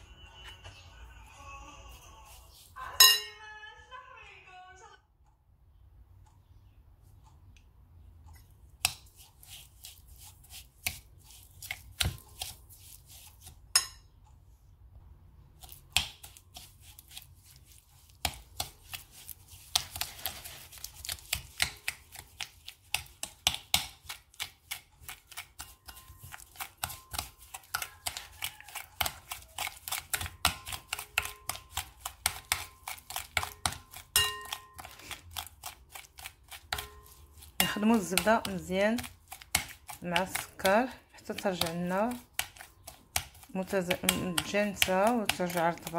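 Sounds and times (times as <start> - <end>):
spoon scraping ceramic bowl: 24.0 - 42.8, 43.4 - 45.9.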